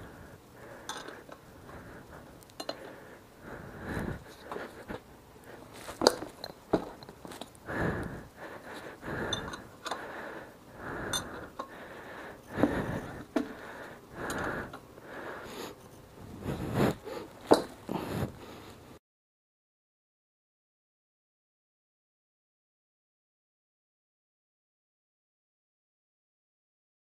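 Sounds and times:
heavy breathing: 0.0 - 19.0.

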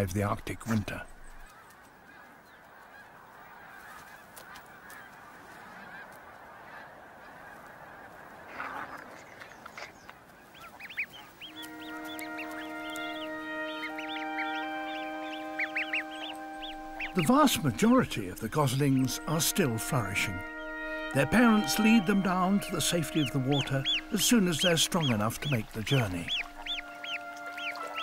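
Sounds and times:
geese honking: 0.0 - 28.0
music with held notes: 11.5 - 28.0.

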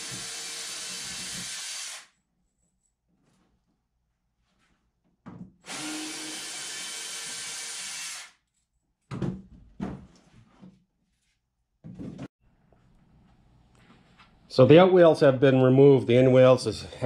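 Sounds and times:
cordless drill running: 0.0 - 2.1, 5.6 - 8.4.

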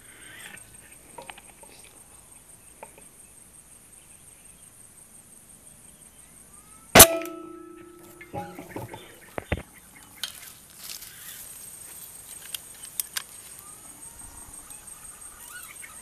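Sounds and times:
air rifle shot: 7.0 - 7.6
short metallic ring: 7.0 - 8.8.

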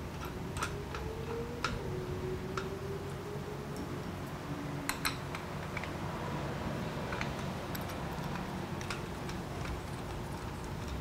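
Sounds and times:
low steady hum: 0.0 - 11.0
light metallic clicks and taps: 4.9 - 6.0, 7.1 - 11.0.

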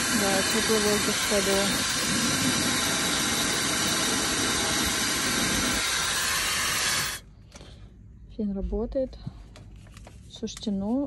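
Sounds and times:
hair dryer running: 0.0 - 7.2.

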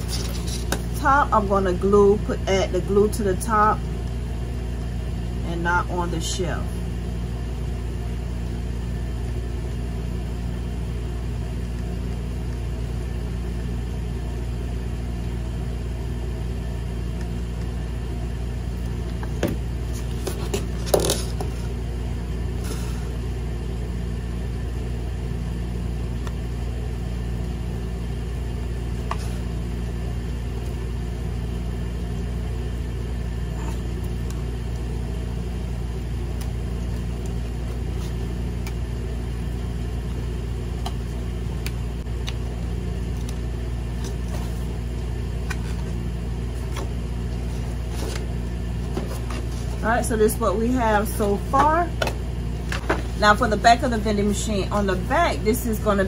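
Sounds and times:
low background hum: 0.0 - 56.0.

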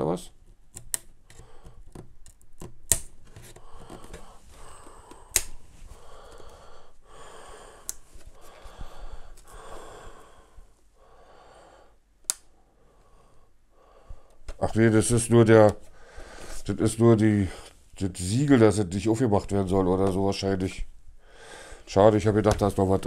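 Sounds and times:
plastic case clicks and taps: 0.7 - 4.3, 5.1 - 5.6, 22.4 - 22.8
soft rubbing and handling: 3.2 - 7.0, 7.9 - 11.0.

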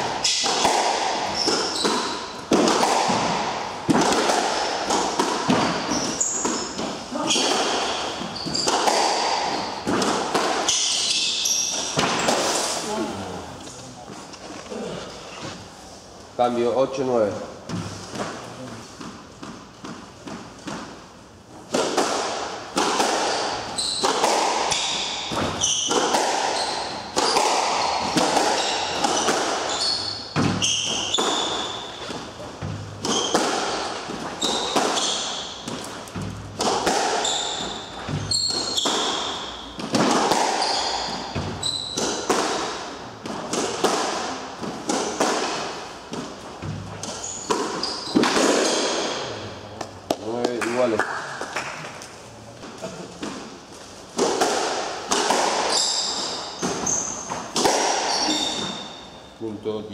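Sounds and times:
squash ball hits echoing: 0.0 - 13.0, 17.7 - 52.0, 52.7 - 59.3
shoes squeaking on wooden floor: 0.2 - 3.4, 5.0 - 10.1, 10.7 - 13.0, 23.2 - 42.4, 44.7 - 49.4, 55.5 - 59.4.

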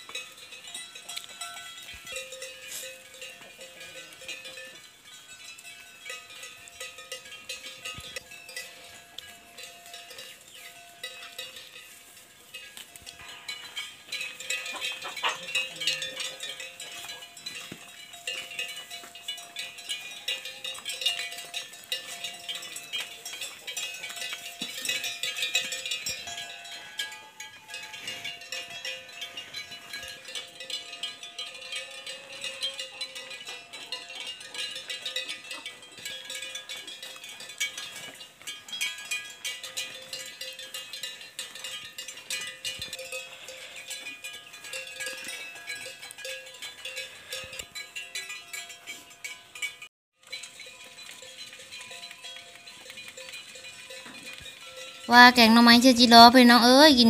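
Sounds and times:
wooden cattle bells clonking: 0.0 - 57.0.

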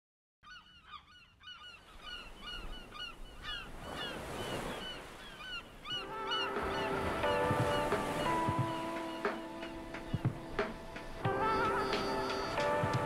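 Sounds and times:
flock of birds calling: 0.4 - 12.8
rushing surf-like noise: 6.1 - 13.0.

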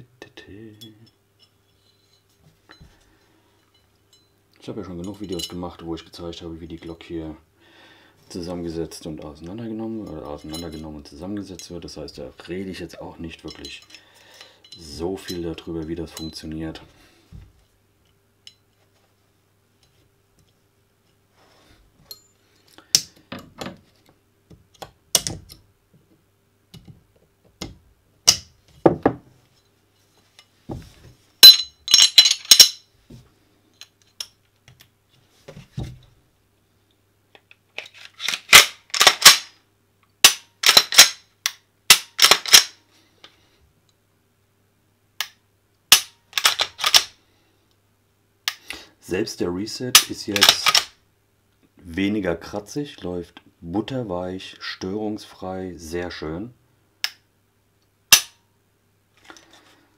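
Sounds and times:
pistol metal clicks and clacks: 37.4 - 39.6, 40.2 - 42.8, 45.2 - 47.1, 50.0 - 51.0, 58.1 - 58.4.

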